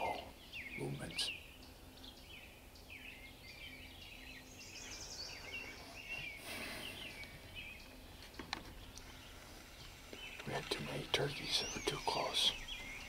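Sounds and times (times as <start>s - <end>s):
songbirds chirping and trilling: 0.0s - 13.0s
brief hiss: 6.4s - 7.2s.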